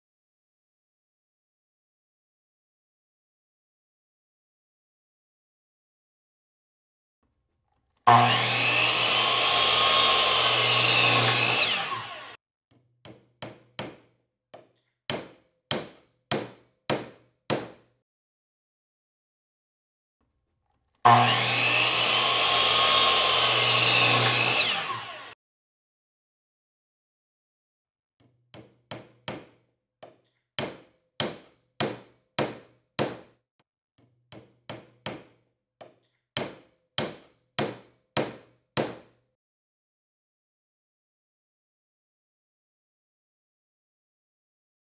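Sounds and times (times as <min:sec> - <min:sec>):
power saw cutting wood: 0:08.0 - 0:12.4, 0:21.0 - 0:25.4
hammer driving nails into wood: 0:13.0 - 0:17.9, 0:28.6 - 0:33.4, 0:34.3 - 0:39.2.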